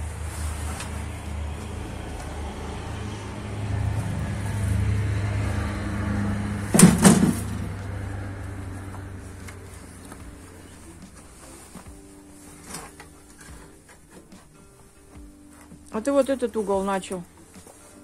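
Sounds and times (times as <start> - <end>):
loud knocks: 6.7 - 7.7.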